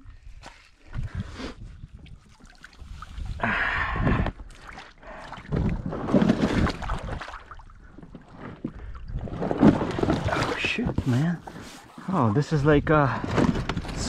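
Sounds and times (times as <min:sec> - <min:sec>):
water splashing around boat hull: 0:01.9 - 0:03.4, 0:04.3 - 0:12.0.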